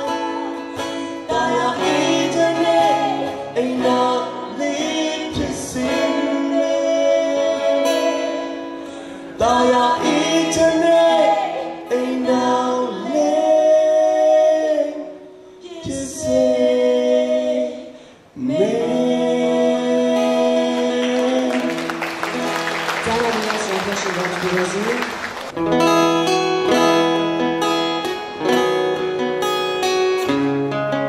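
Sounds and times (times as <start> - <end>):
woman and man singing: 0.0 - 21.9.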